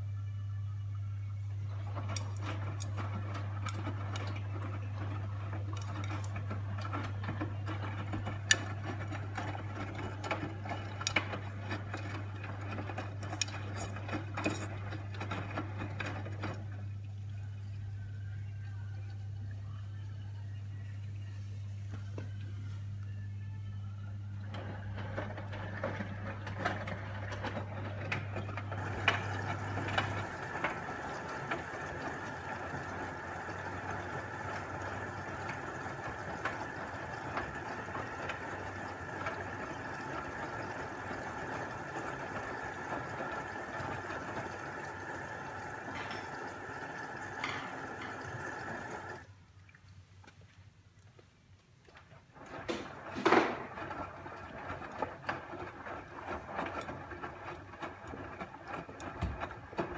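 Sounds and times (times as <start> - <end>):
machine whirring and rattling: 1.6 - 16.9, 24.4 - 49.3, 52.4 - 59.9.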